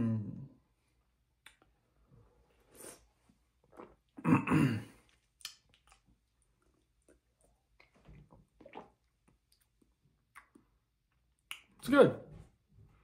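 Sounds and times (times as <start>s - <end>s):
soft sips: 2.4s - 4.0s.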